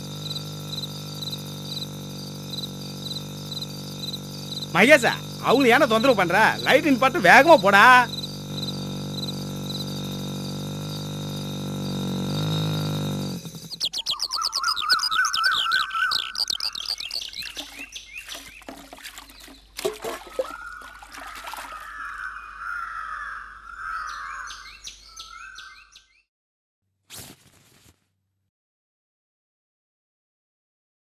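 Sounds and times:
birds chirping: 0:00.1 - 0:11.2, 0:12.8 - 0:26.3
bird warbling call: 0:13.6 - 0:19.6, 0:20.2 - 0:26.1.

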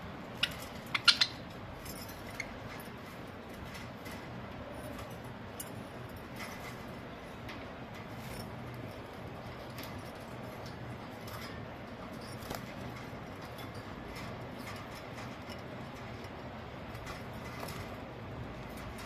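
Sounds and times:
steady low hum: 0:00.0 - 0:19.0
budgerigars chirping: 0:00.4 - 0:01.5.

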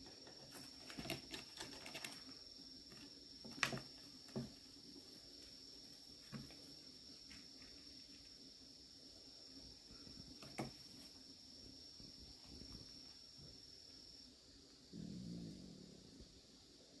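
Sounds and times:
kittens playing on wood: 0:00.0 - 0:08.4, 0:10.2 - 0:11.2
faint high-pitched hum: 0:00.0 - 0:17.0.

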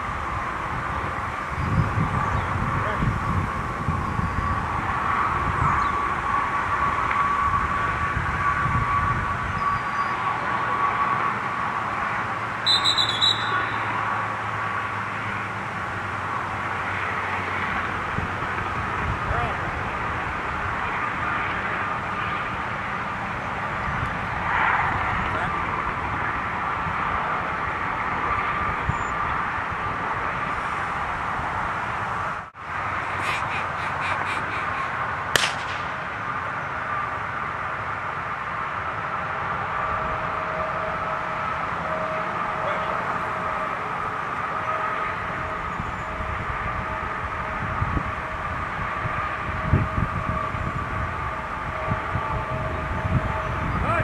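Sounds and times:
steady background noise: 0:00.0 - 0:54.0
dog whistle short high pips: 0:12.7 - 0:13.8
duck call quacks: 0:12.7 - 0:13.9
sharp gunshot crack: 0:35.3 - 0:36.1.

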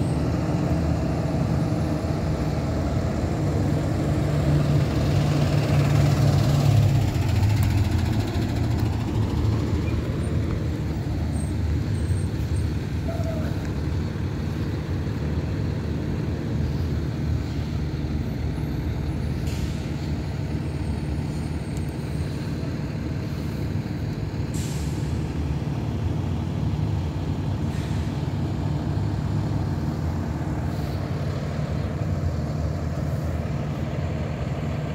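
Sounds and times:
diesel bus engines idling: 0:00.0 - 0:34.9
air brake hisses: 0:19.4 - 0:20.1, 0:24.5 - 0:25.2, 0:27.6 - 0:28.2.

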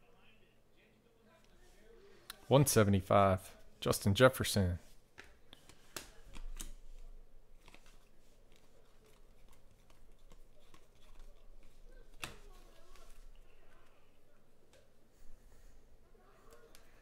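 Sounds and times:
cards being flipped through: 0:05.2 - 0:13.4.

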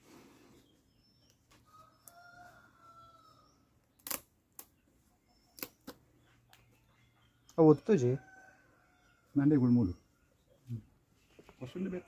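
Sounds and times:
faint rooster crowing: 0:01.5 - 0:03.7, 0:07.8 - 0:09.6
dry palm leaf crackling: 0:04.0 - 0:04.7.

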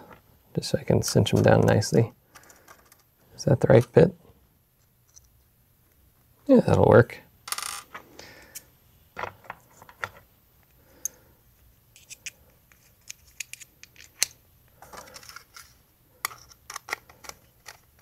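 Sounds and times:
small metal parts clicking: 0:12.0 - 0:18.0.

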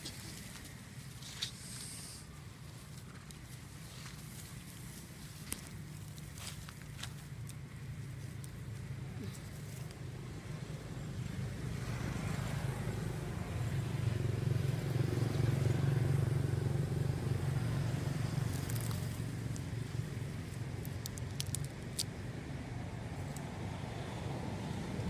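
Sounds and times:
vehicle engine rumble: 0:00.0 - 0:25.0.

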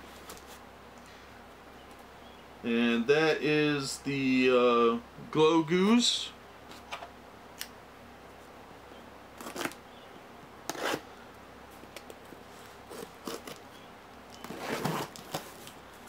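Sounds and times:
box cutter slicing packing tape: 0:09.4 - 0:09.8, 0:12.9 - 0:13.6, 0:14.4 - 0:15.5.

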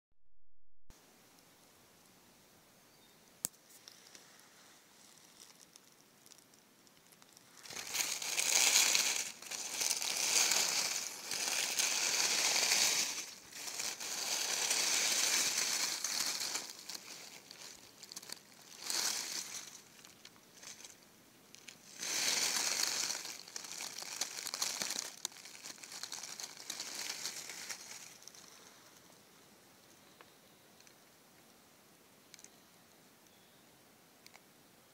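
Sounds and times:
dry leaves rustling: 0:03.9 - 0:29.1.

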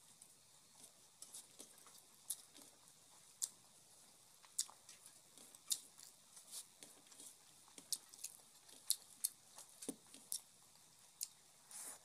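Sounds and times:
hand mixing food on steel plate: 0:00.0 - 0:12.0
wet eating clicks and smacks: 0:01.3 - 0:03.7, 0:04.4 - 0:10.5.

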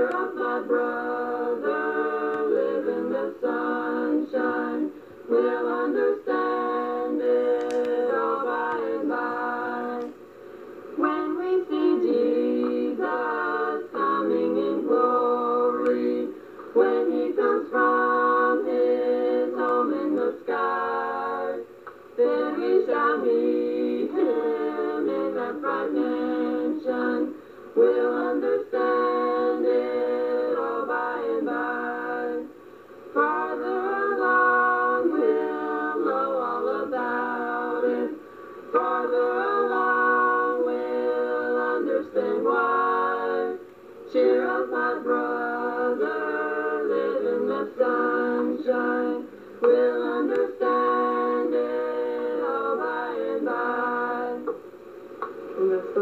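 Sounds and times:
people singing in harmony: 0:00.0 - 0:10.3, 0:10.9 - 0:54.7, 0:55.6 - 0:56.0.

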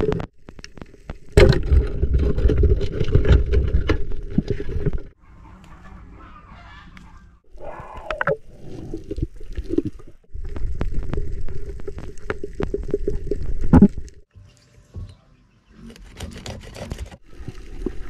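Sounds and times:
sharp clicks and crackles: 0:00.0 - 0:05.1, 0:09.4 - 0:14.3.

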